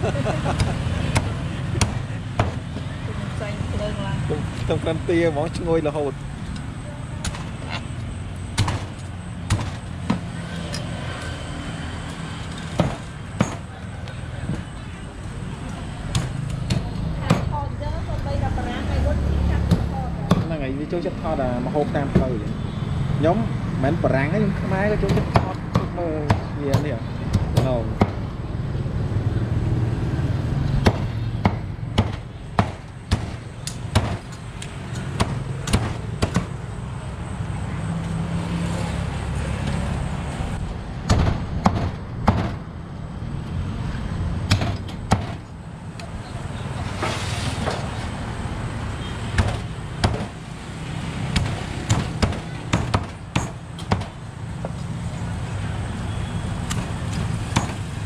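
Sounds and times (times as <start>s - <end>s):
cleaver chopping on a block: 8.6s - 10.3s, 25.0s - 28.2s, 30.8s - 34.2s, 35.2s - 36.6s, 44.5s - 45.4s, 49.4s - 50.3s, 51.3s - 54.2s.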